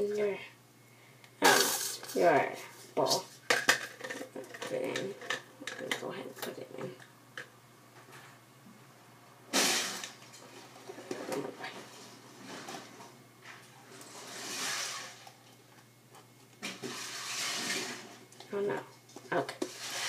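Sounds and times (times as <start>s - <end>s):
hiss: 9.5s - 10.0s.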